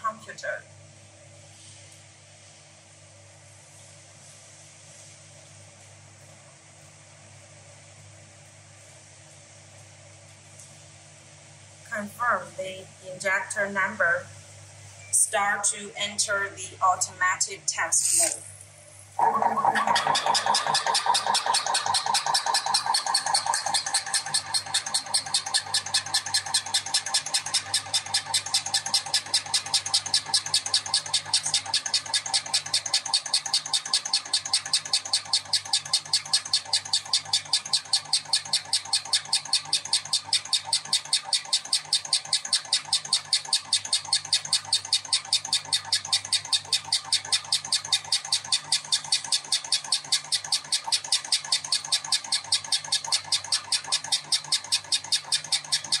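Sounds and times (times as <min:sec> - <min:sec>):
motor hum: 0:11.9 - 0:56.0
even ticking: 0:19.6 - 0:56.0.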